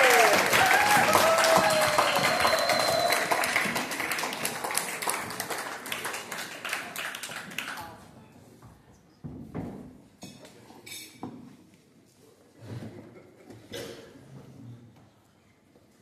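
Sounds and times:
audience clapping: 0.0s - 8.0s.

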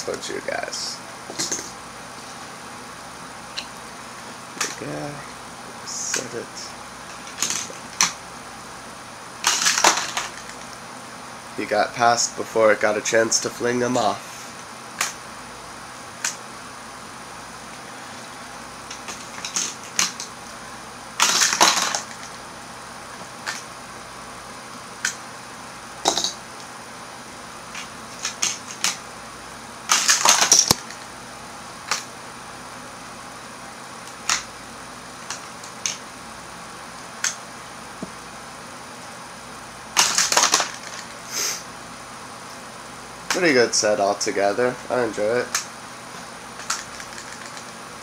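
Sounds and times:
plastic toy track clicking: 40.0s - 41.1s, 46.6s - 47.7s.

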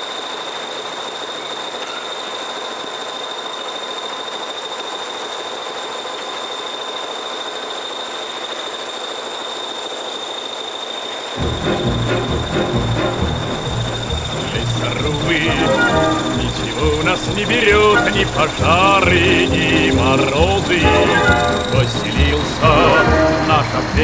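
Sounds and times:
faint high-pitched whine: 0.0s - 24.0s
truck driving on rutted track: 11.4s - 24.0s.

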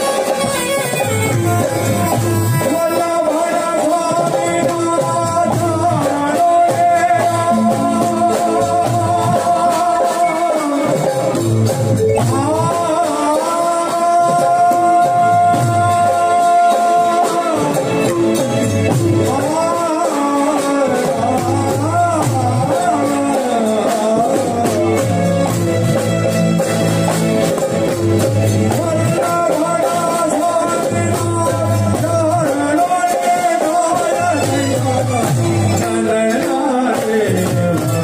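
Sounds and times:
steady drum beat: 0.0s - 38.0s.

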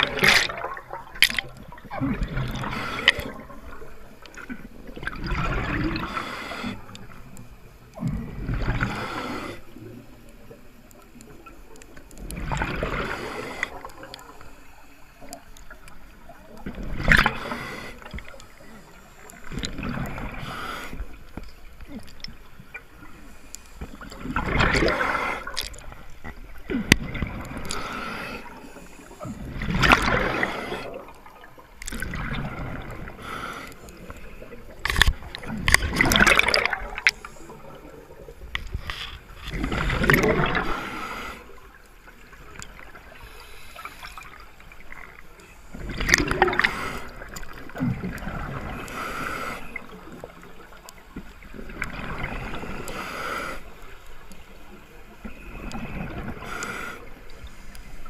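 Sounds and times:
scuba regulator bubbly exhalations: 0.0s - 6.9s, 12.2s - 14.3s, 23.9s - 38.7s, 39.3s - 41.8s, 45.0s - 50.4s
quiet breathing underwater: 0.0s - 58.0s.

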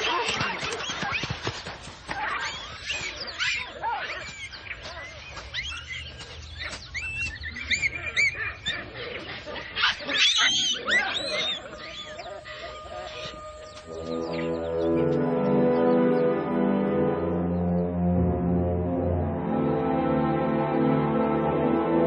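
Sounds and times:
baboons screaming and chattering: 0.0s - 16.1s.

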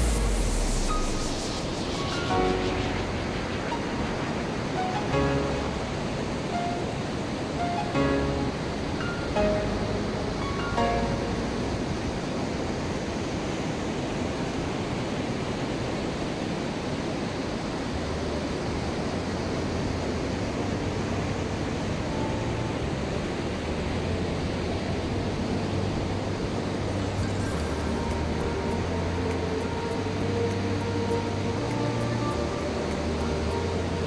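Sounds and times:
surf breaking on beach: 0.0s - 8.0s.

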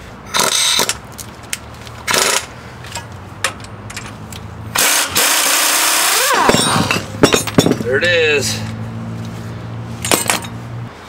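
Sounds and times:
pneumatic air tool: 0.3s - 1.0s, 2.1s - 2.5s, 4.7s - 7.0s.

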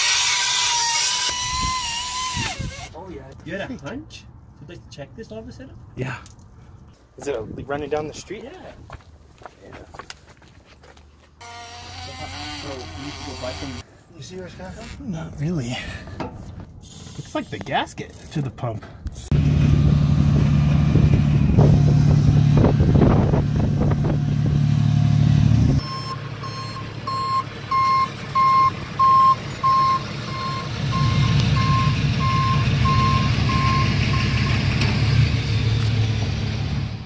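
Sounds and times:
heavy vehicle engine running: 19.3s - 37.0s
reversing alarm beeping: 25.8s - 35.2s.

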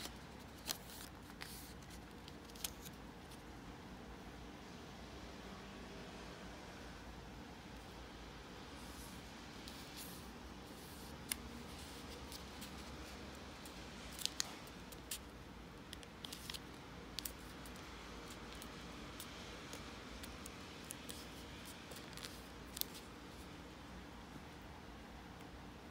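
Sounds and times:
paper being folded and creased: 0.0s - 3.4s, 8.8s - 15.3s, 15.9s - 23.5s
faint steady hiss: 0.0s - 25.9s.

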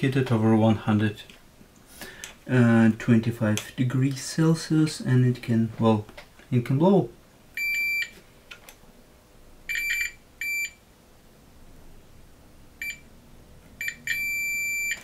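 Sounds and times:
multimeter continuity beeping: 7.6s - 8.2s, 9.7s - 10.8s, 12.8s - 13.1s, 13.8s - 15.0s.

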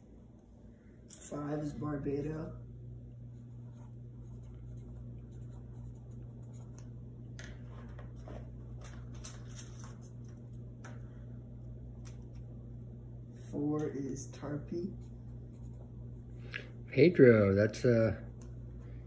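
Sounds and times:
steady low hum: 0.0s - 19.0s
marker scratching on paper: 3.4s - 6.9s, 14.9s - 15.9s.

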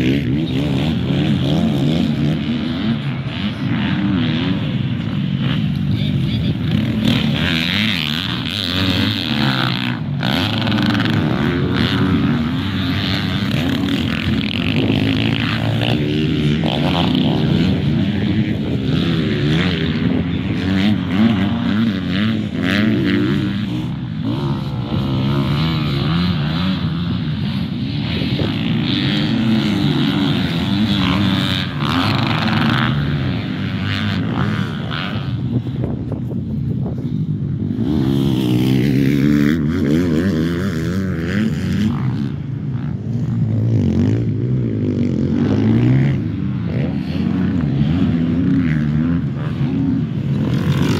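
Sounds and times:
dirt bike engines revving: 0.0s - 50.9s.

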